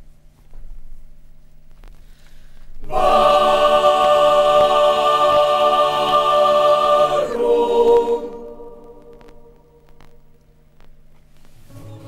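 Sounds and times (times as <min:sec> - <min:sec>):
choir holding a chord: 0:02.8 - 0:09.6, 0:11.7 - 0:12.0.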